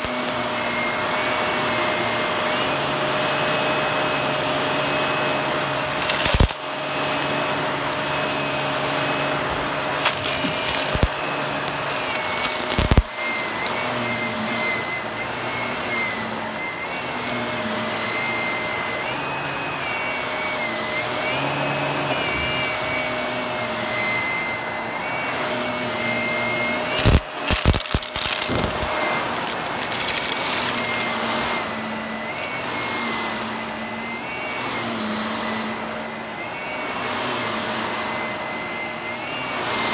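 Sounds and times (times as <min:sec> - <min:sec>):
vacuum cleaner motor whining: 0:00.0 - 0:39.9
debris cracking in vacuum: 0:05.4 - 0:16.2, 0:26.9 - 0:31.1.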